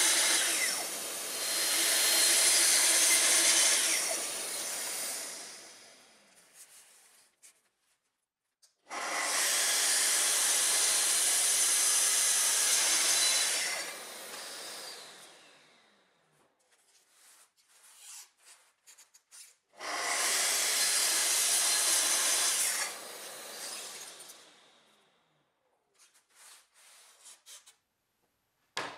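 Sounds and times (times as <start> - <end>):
saw blade winding down: 0.0 - 5.6
circular saw cutting wood: 0.0 - 5.8, 9.0 - 15.6, 19.8 - 24.6.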